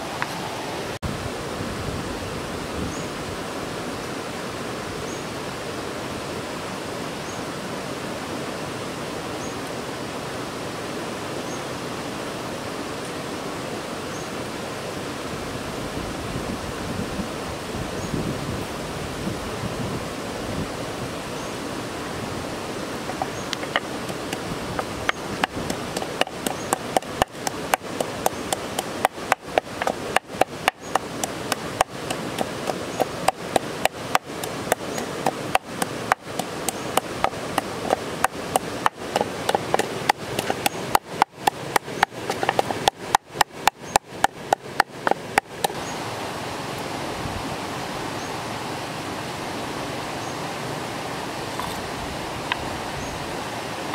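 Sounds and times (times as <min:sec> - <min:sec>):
running water: 0:00.0 - 0:53.9
wooden pestle pounding in mortar: 0:23.1 - 0:45.5.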